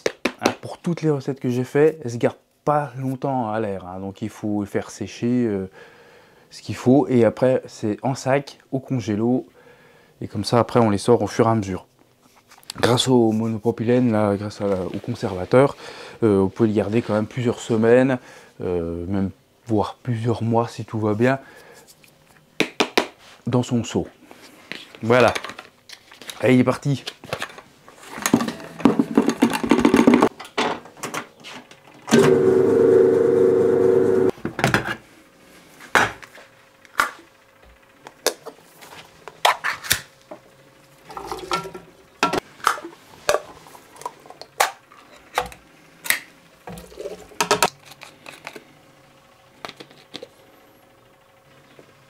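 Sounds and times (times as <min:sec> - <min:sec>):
mixer humming: 0:32.1 - 0:34.3.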